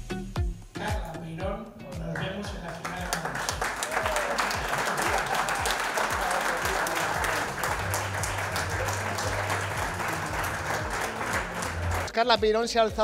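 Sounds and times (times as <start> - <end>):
audience applauding: 2.2 - 12.1.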